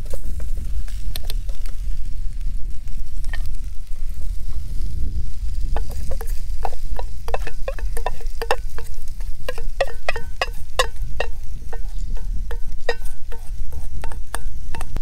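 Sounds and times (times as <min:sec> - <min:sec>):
wooden spatula scraping metal pot: 0:05.7 - 0:15.0.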